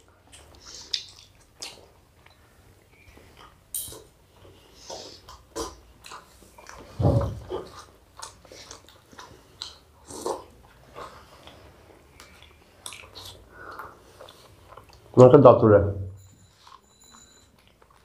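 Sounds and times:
wet chewing and lip smacks: 0.0s - 15.2s, 17.4s - 18.0s
low thud: 7.0s - 7.5s.

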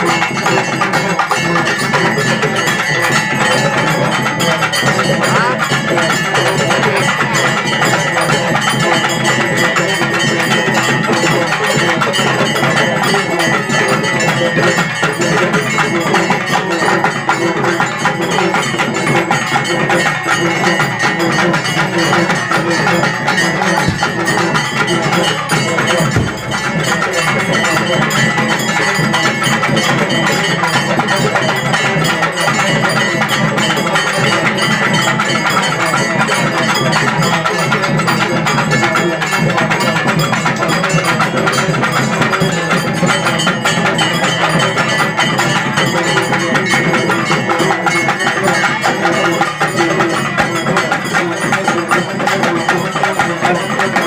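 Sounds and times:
steady high tone: 0.0s - 38.6s
crowd voices: 0.0s - 54.0s
fast live drumming: 0.0s - 54.0s.

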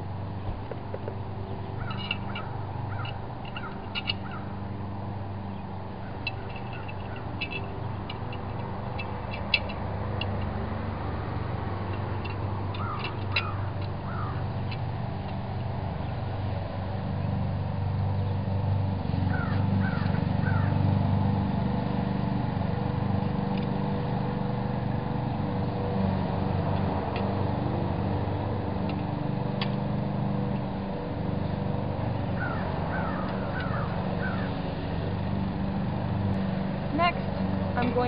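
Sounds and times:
low engine hum: 0.0s - 38.0s
bird calling: 1.5s - 4.6s, 12.7s - 14.8s, 19.3s - 20.8s, 32.2s - 34.7s
wrench clicking: 1.8s - 4.3s, 6.2s - 10.5s, 11.9s - 15.4s.

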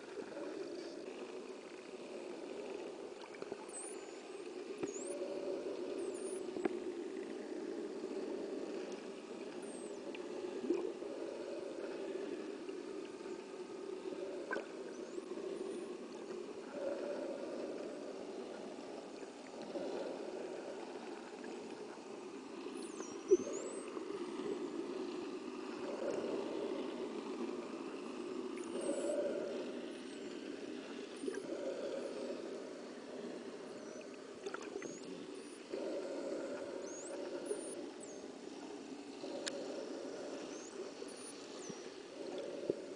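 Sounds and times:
low underwater rumble: 30.5s - 42.9s.

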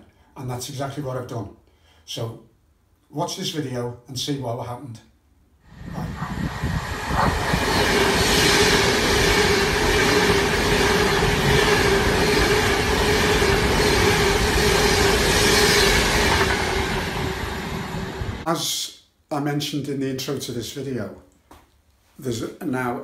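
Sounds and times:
train passing at speed: 5.7s - 18.5s.

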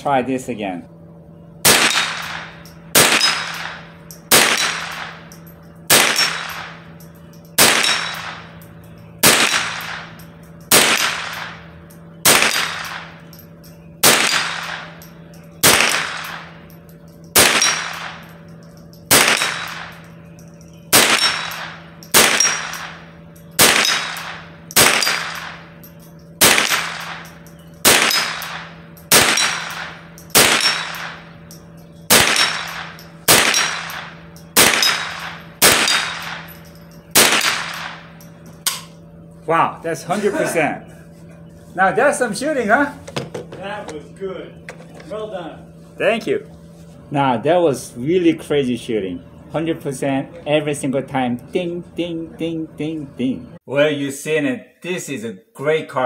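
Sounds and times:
rifle shots echoing: 1.6s - 5.3s, 5.9s - 7.0s, 7.6s - 8.6s, 9.2s - 13.3s, 14.0s - 15.0s, 15.6s - 16.6s, 17.3s - 18.4s, 19.1s - 20.1s, 20.9s - 31.4s, 32.1s - 38.2s
bullet ringing steel target: 1.6s - 39.1s.

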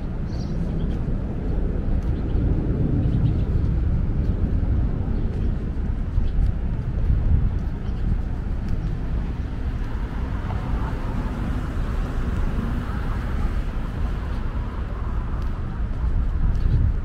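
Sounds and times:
cars driving past: 8.2s - 16.8s.

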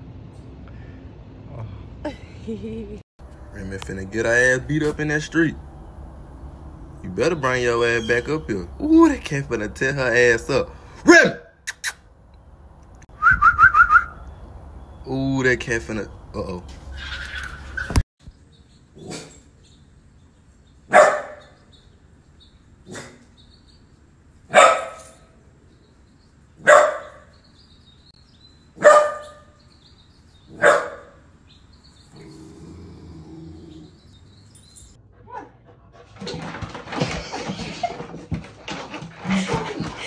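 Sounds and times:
puppy barking: 20.9s - 21.6s, 24.5s - 25.2s, 26.6s - 27.3s, 28.8s - 29.5s, 30.5s - 31.2s.

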